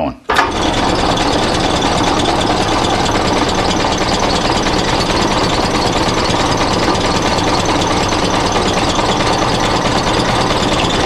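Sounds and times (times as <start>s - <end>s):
drill press motor running: 0.3s - 11.0s.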